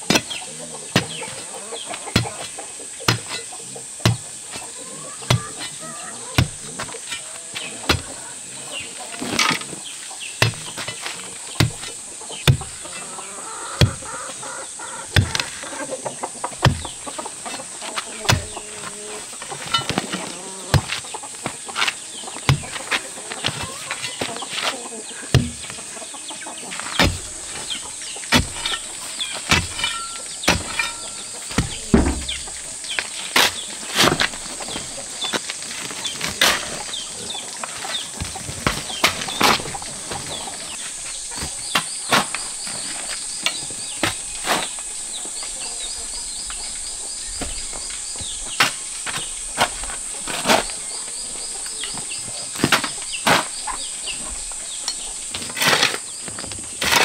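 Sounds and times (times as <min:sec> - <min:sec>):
high insect drone: 0:00.0 - 0:56.9
digging bar thudding into earth: 0:02.2 - 0:04.7, 0:06.4 - 0:08.2, 0:10.4 - 0:12.8, 0:15.1 - 0:15.6, 0:16.5 - 0:17.6, 0:18.2 - 0:21.1, 0:21.8 - 0:24.4, 0:25.3 - 0:25.8, 0:27.0 - 0:34.8.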